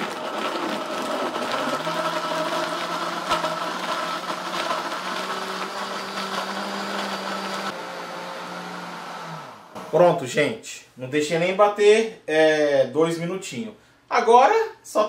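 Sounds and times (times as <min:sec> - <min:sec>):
blender motor running: 0:00.0 - 0:09.9.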